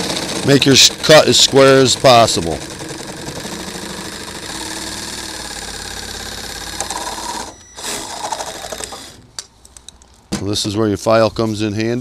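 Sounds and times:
reciprocating saw cutting plastic: 0.0 - 9.3.

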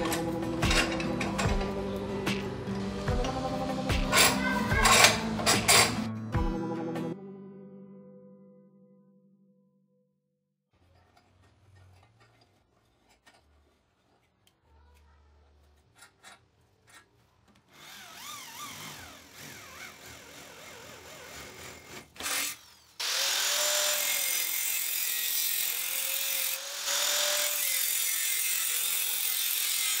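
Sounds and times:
angle grinder cutting steel: 17.7 - 30.0
electric drill whining: 17.7 - 30.0.

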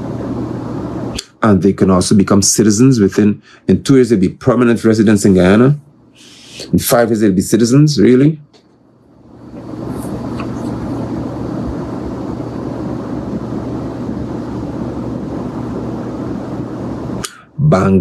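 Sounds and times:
low engine-like rumble: 0.0 - 3.2, 9.0 - 18.0
low hum: 0.0 - 18.0.

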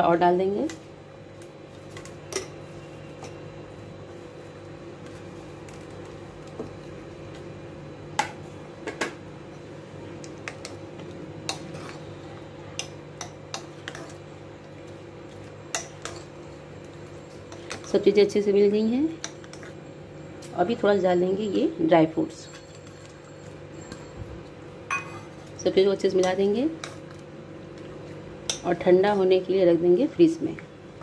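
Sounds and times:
spoon clinking against glass bowl: 24.9 - 25.3.

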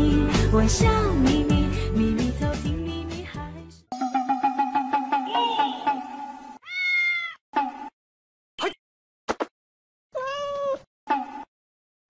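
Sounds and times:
cat meowing: 6.6 - 7.4, 10.2 - 10.9.

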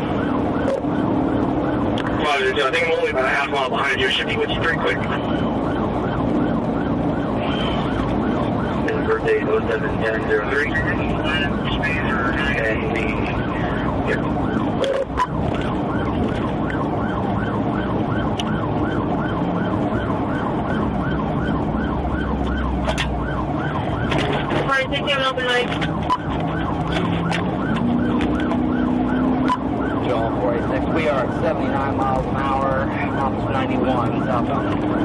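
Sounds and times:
police siren yelping: 0.0 - 35.0.

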